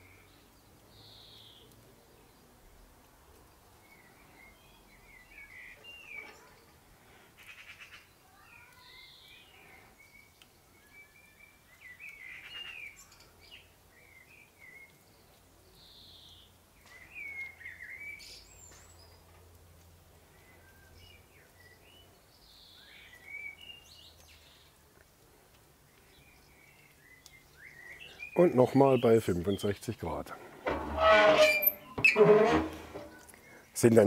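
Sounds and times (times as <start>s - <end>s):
birds chirping: 25.8s - 34.0s.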